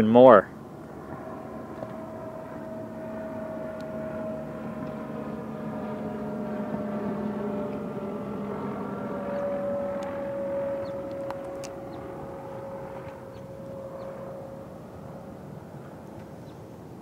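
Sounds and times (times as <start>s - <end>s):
distant engine drone: 0.0s - 17.0s.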